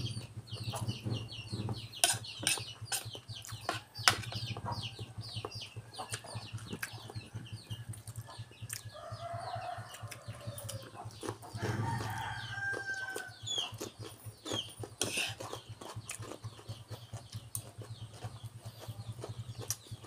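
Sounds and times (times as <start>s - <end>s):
chickens chirping: 0.0s - 20.0s
crunching and chewing vegetables: 2.0s - 20.0s
rooster crowing: 7.9s - 11.0s, 11.6s - 13.5s.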